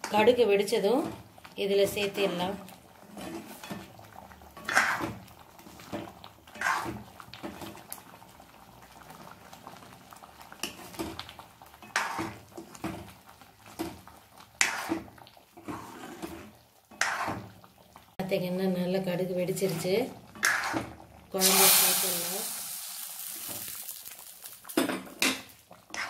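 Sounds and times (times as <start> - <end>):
curry bubbling: 0.0 - 26.0
spoon scraping a pan: 3.0 - 3.9, 4.6 - 5.2, 5.8 - 7.0, 11.8 - 12.8, 14.6 - 17.5, 19.6 - 21.0, 25.0 - 26.0.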